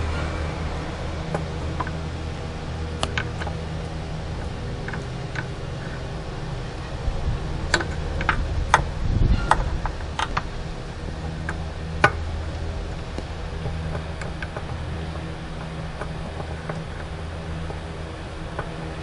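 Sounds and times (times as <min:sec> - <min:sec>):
steady low hum: 0:00.0 - 0:19.0
metal clicks and knocks: 0:03.0 - 0:06.1, 0:07.7 - 0:10.6.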